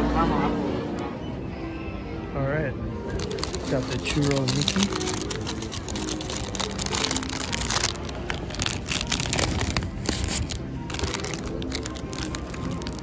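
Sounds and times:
plastic bag crinkling: 3.1 - 13.0.

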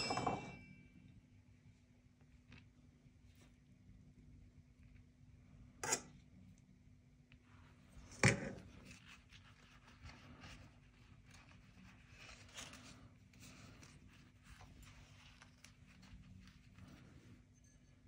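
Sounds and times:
metal spoon knocking: 0.0 - 0.7
pastry sheets rustling: 7.4 - 17.5.

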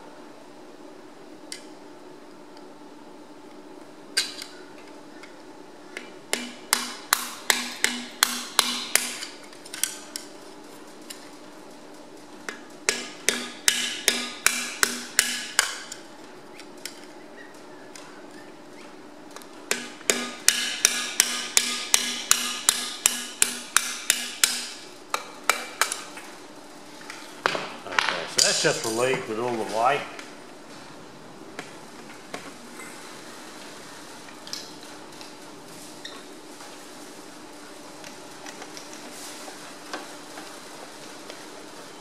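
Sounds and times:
hammer striking steel drift: 19.7 - 24.8.

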